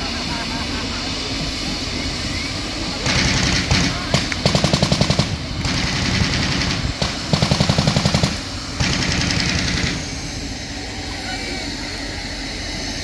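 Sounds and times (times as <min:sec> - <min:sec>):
steady rushing hiss: 0:00.0 - 0:13.0
machine-gun fire: 0:03.0 - 0:10.0.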